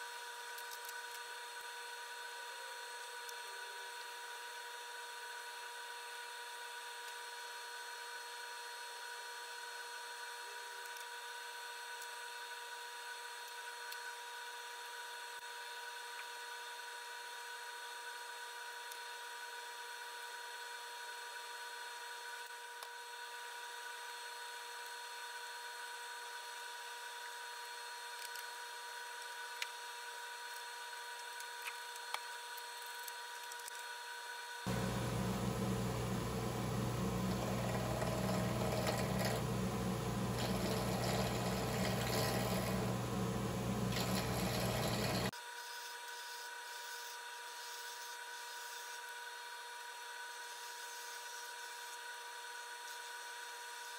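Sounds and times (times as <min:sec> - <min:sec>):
shop machinery motor whine: 0:34.7 - 0:45.3.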